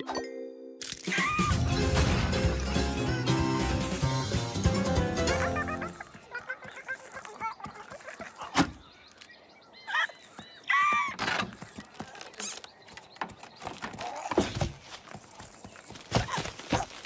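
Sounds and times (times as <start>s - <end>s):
cartoon bird squawks: 5.3s - 8.6s.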